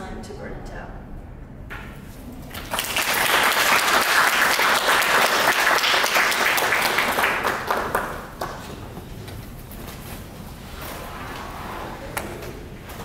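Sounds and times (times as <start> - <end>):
audience applauding: 2.5 - 8.9.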